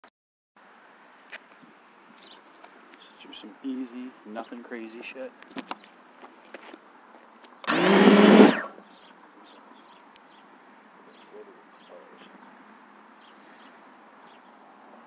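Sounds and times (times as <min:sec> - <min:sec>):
drone motors whining: 0:07.6 - 0:08.8
faint bird chirps: 0:08.8 - 0:12.5.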